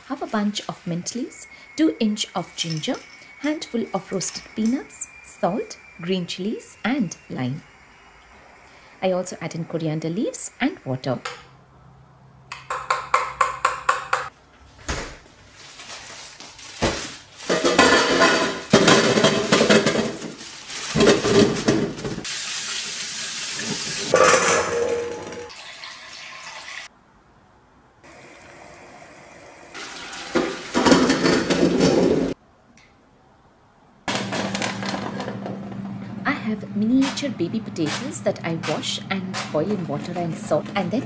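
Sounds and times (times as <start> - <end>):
bowl and potatoes clattering: 2.4 - 5.0
water poured into sink: 25.5 - 26.9, 29.8 - 30.9.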